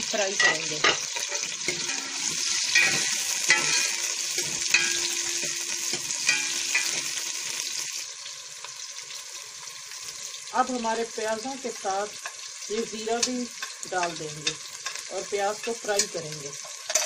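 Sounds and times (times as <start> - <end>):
onions sizzling in oil: 0.0 - 17.0
metal ladle clinking on pot: 0.4 - 7.1.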